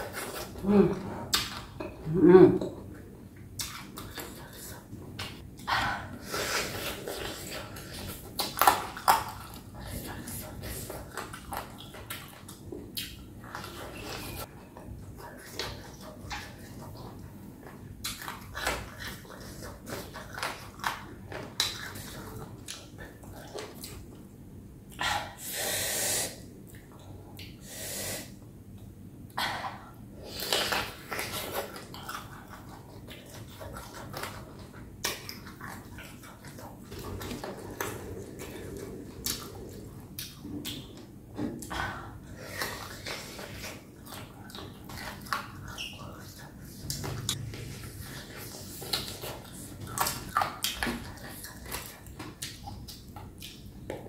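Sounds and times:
chewing with wet mouth clicks: 0:06.8 - 0:14.4, 0:30.4 - 0:41.8, 0:42.6 - 0:54.0
sucking hissing sounds: 0:25.4 - 0:26.4, 0:27.6 - 0:28.4.

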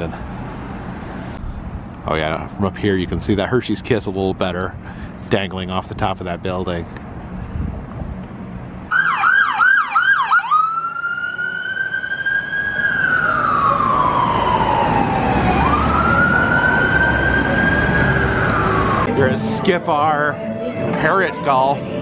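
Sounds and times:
street traffic rumble: 0:00.0 - 0:22.0
emergency vehicle siren: 0:08.9 - 0:19.4.

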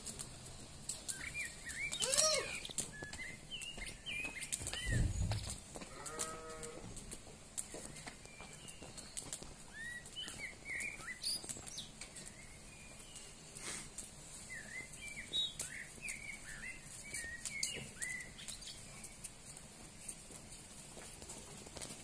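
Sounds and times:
nightingale singing: 0:00.9 - 0:05.7, 0:07.6 - 0:13.6, 0:14.3 - 0:19.3
sharp bird clicks: 0:00.9 - 0:06.4.

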